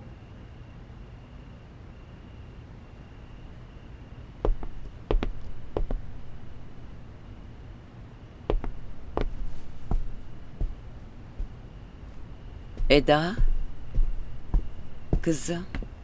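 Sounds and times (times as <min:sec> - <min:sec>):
footsteps on hard floor: 0:04.4 - 0:07.0, 0:08.5 - 0:16.0.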